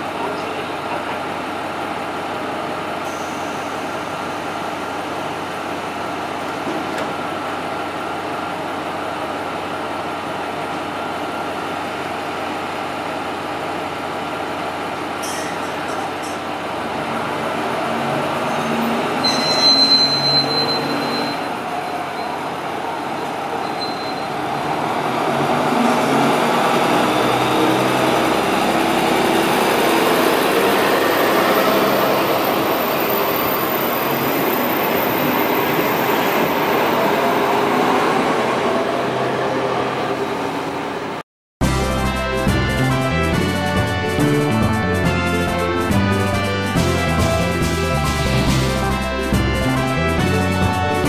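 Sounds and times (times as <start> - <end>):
train cars rolling past: 0.0 - 41.2
diesel railcar engine: 0.0 - 51.0
brief high-pitched tone: 18.5 - 21.6.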